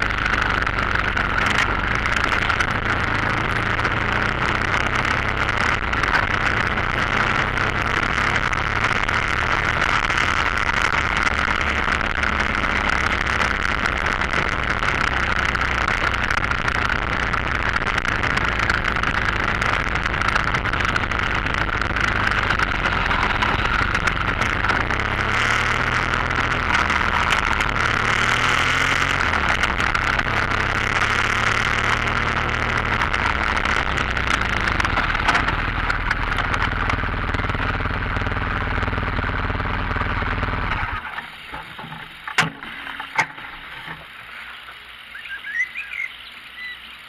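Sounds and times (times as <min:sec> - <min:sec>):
motorcycle engine running: 0:00.0 - 0:47.0.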